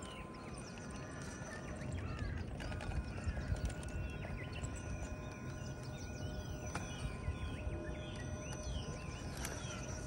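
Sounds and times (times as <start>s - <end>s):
birds chirping: 0.0s - 10.0s
wind rumble on microphone: 0.0s - 10.0s
electric motor whine: 2.5s - 10.0s.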